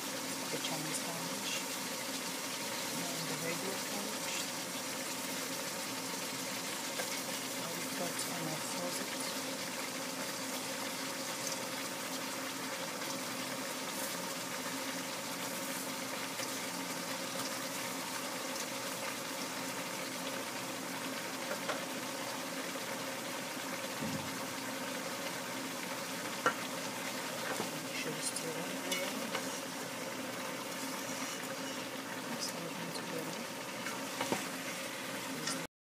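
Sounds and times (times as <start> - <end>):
vegetables sizzling in a pan: 0.0 - 35.7.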